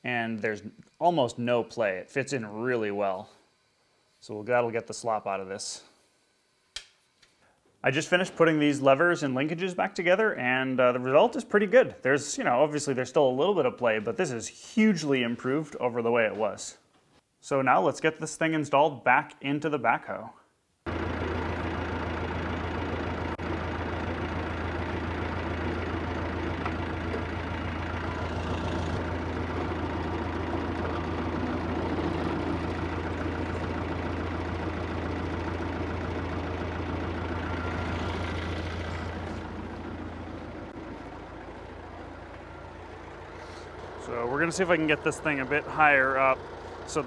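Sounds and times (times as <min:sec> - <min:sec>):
tractor engine running: 0:20.9 - 0:47.0.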